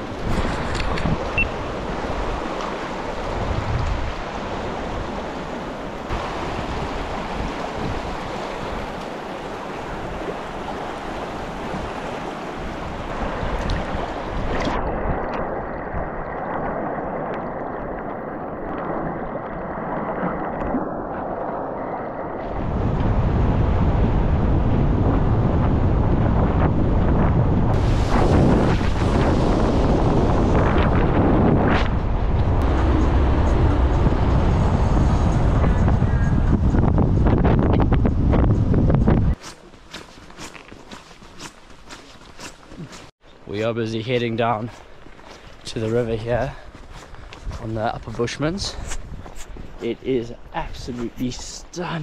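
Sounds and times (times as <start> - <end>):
flowing river water: 0.0 - 23.1
wind buffeting microphone: 0.0 - 39.4, 43.6 - 51.6.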